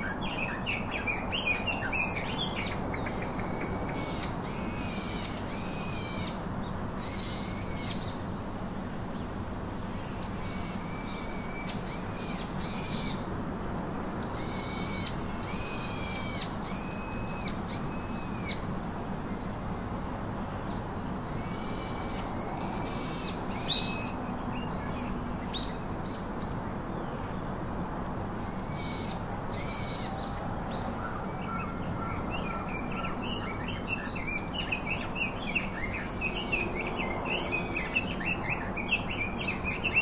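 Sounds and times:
birds whistling calls: 0.0s - 6.4s, 21.3s - 27.0s, 28.4s - 40.0s
steady background noise: 0.0s - 40.0s.

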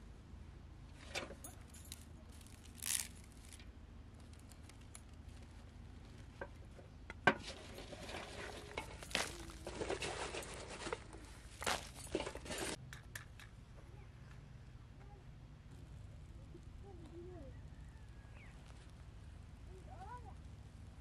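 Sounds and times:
rustling and crinkling: 1.0s - 12.8s.

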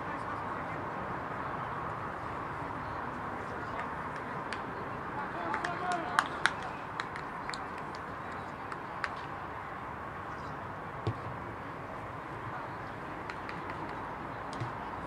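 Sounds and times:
dull thump: 11.0s - 11.3s.

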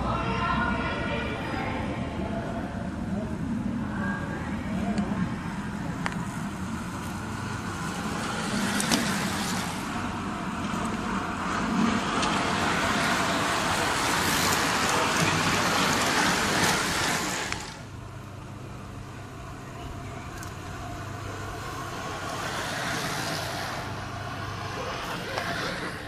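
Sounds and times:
tyres hissing on asphalt: 5.3s - 26.0s
bicycle chains whirring: 6.4s - 18.0s, 18.6s - 26.0s.

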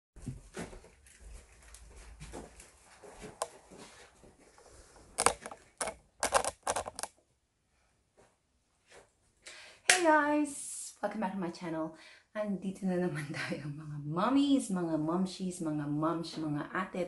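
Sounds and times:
phone handling noise: 5.2s - 7.1s
sharp clicks: 5.2s - 7.1s.

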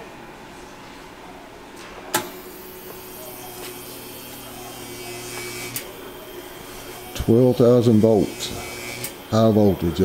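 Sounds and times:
electric arc buzz and hiss: 2.3s - 10.0s.

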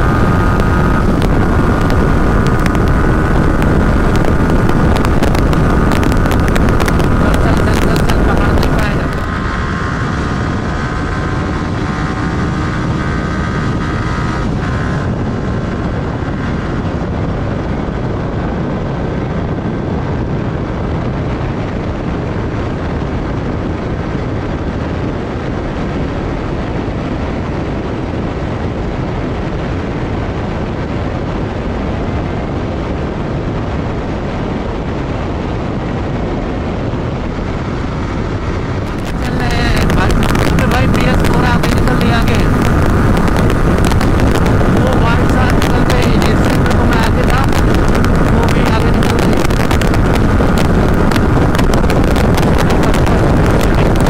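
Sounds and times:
motorcycle engine drone: 0.0s - 54.0s
wind rushing over microphone: 0.0s - 54.0s.

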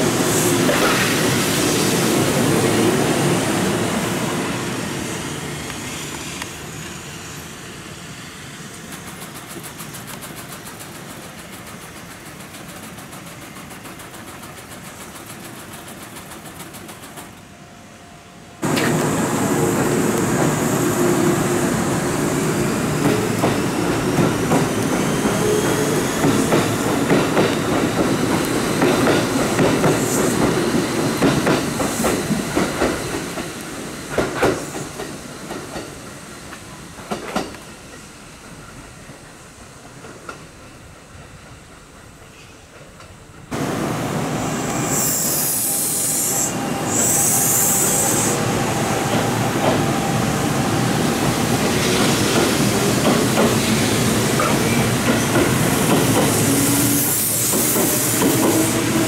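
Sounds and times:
train running noise: 0.0s - 59.0s
rail clacks: 8.7s - 17.4s, 18.6s - 21.6s, 22.8s - 43.8s, 46.3s - 59.0s
air hiss bursts: 43.5s - 59.0s
train motor whine: 43.6s - 54.0s.

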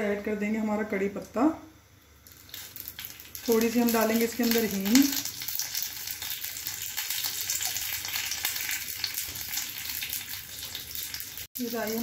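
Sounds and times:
seeds sizzling in hot oil: 2.2s - 12.0s.

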